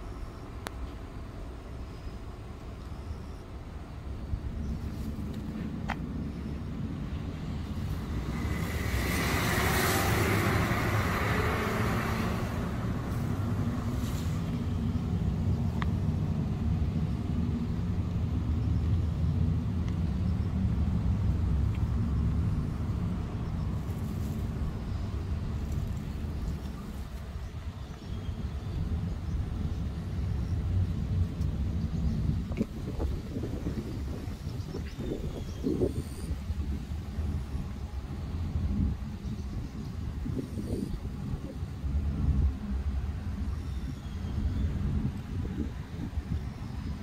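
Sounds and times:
road traffic rumble: 0.0s - 47.0s
vehicle passing: 7.5s - 15.2s.

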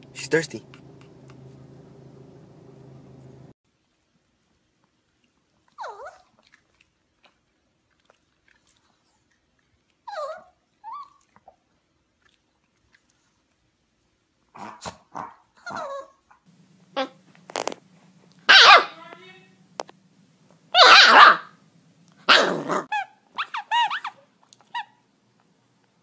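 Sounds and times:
low steady hum: 0.0s - 14.5s, 15.7s - 26.0s
puppies yipping and barking: 18.5s - 19.0s, 20.8s - 21.5s, 22.3s - 25.0s.

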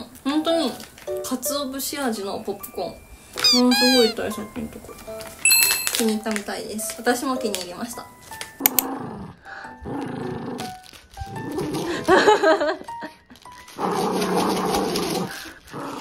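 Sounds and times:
dog growling in play: 8.7s - 12.1s, 13.7s - 16.0s.

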